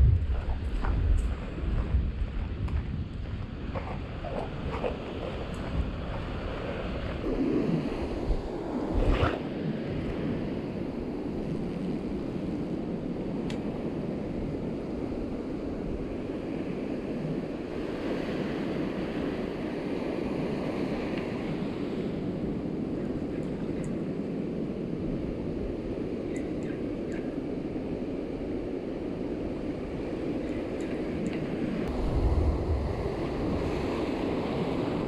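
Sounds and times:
ocean surf washing on beach: 0.0 - 35.0
wind buffeting microphone: 0.0 - 35.0.

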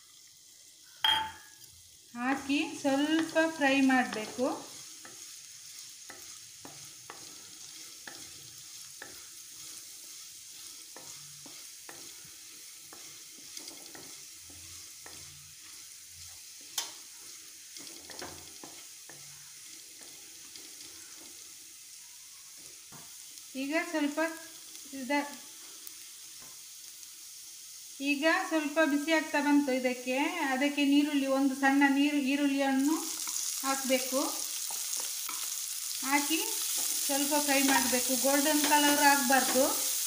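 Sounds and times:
garlic sizzling in a pan: 0.0 - 40.0
spatula scraping and tapping pan: 2.3 - 21.6, 22.4 - 23.5, 25.3 - 26.7, 33.1 - 40.0.

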